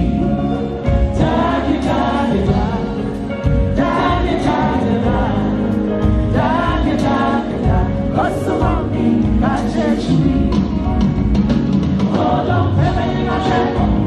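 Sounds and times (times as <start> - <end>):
group of singers: 0.0 - 14.0
instrumental backing music: 0.0 - 14.0.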